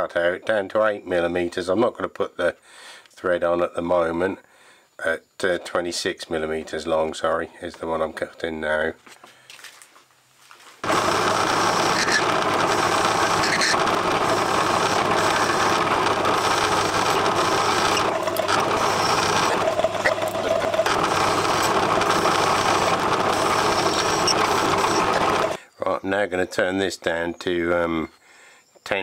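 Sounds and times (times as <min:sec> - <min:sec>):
metal lathe cutting steel: 0:10.8 - 0:25.6
motor hum: 0:10.8 - 0:25.6.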